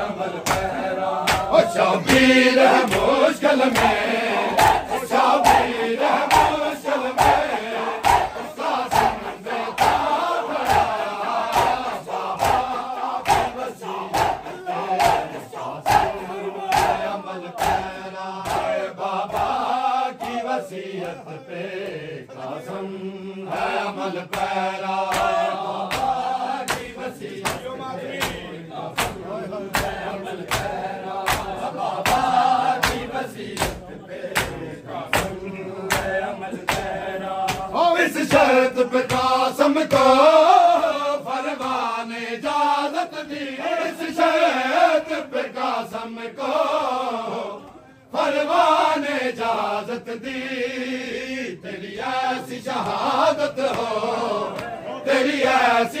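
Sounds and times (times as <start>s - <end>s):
men chanting together: 0.0s - 56.0s
chest-beating slaps: 0.4s - 4.0s, 4.6s - 20.4s, 23.6s - 40.2s.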